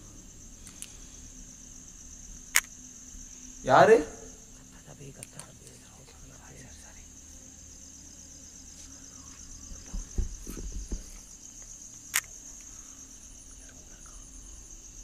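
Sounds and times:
crickets trilling: 0.0 - 15.0
sharp click: 2.5 - 2.7
low thumps: 9.6 - 11.4.

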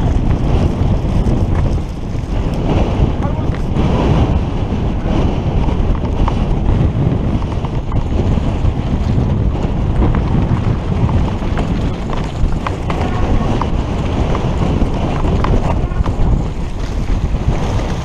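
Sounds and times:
bike clicks and rattles: 0.0 - 4.3, 5.5 - 18.0
wind buffeting microphone: 0.0 - 18.0.

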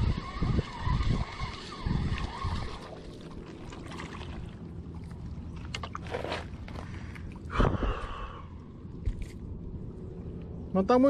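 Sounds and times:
water lapping on rocks: 0.0 - 7.6.

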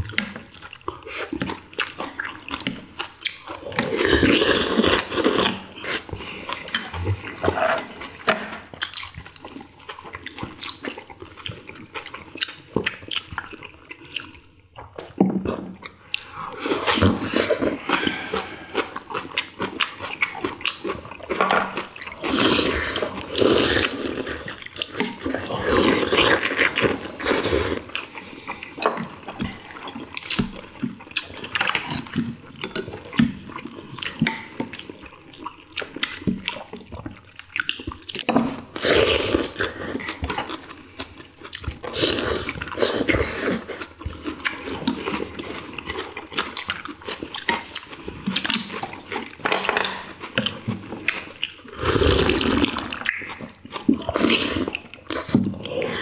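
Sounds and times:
people chewing: 0.0 - 56.0
people slurping soup: 3.8 - 8.3, 16.2 - 19.5, 41.8 - 46.1, 47.5 - 56.0.

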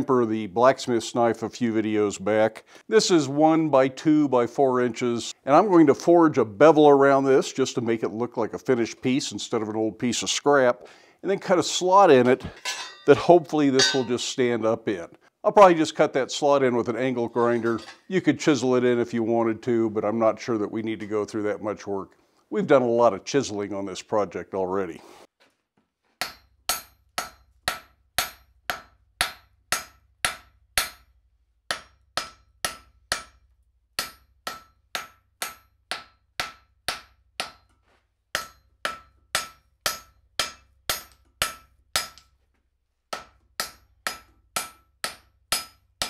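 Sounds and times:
hammer striking steel on anvil: 12.6 - 13.2, 13.8 - 14.2, 26.2 - 31.1, 31.7 - 42.3, 43.1 - 45.8.

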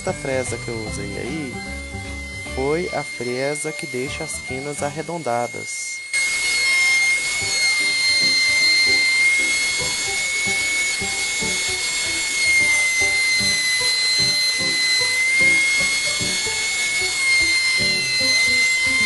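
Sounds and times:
background music: 0.0 - 5.4
router whining: 0.0 - 19.0.

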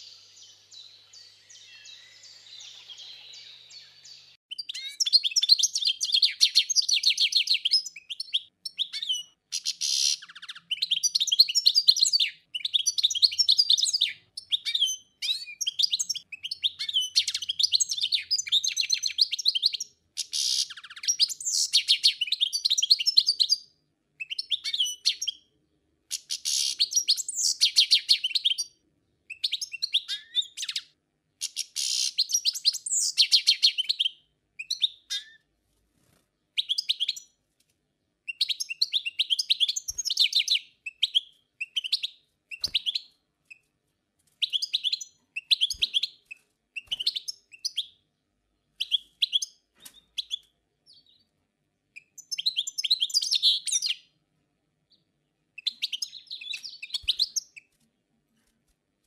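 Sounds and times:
songbird twittering: 0.0 - 25.4, 26.1 - 35.4, 38.3 - 43.2, 55.6 - 57.7.

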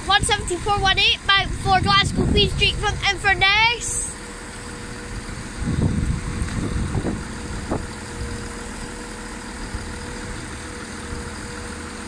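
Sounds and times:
low rumble: 0.0 - 9.0
diesel train engines idling: 0.0 - 12.0.

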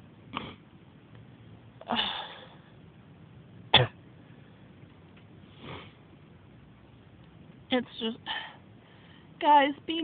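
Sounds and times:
woman coughing: 3.7 - 4.0.

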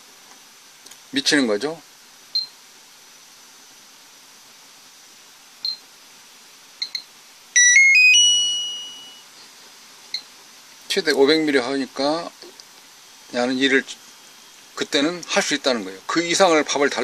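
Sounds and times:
buzzer power-on jingle: 7.6 - 9.2
short high beeps: 7.6 - 9.2.

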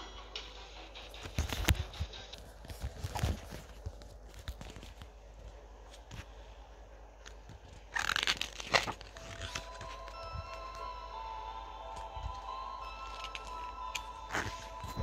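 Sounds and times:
paper page turning: 1.2 - 6.3, 7.3 - 10.2.

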